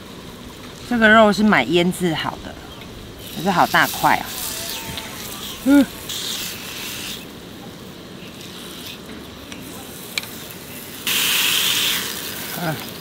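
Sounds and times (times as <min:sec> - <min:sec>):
meat sizzling on hot plate: 0:03.0 - 0:07.3, 0:09.9 - 0:13.0.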